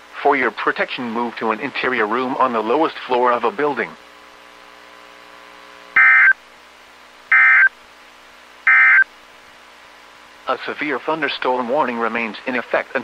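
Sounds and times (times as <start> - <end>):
faint steady hum: 0.0 - 13.0
digital data tone bursts: 6.0 - 6.4, 7.3 - 7.7, 8.7 - 9.1.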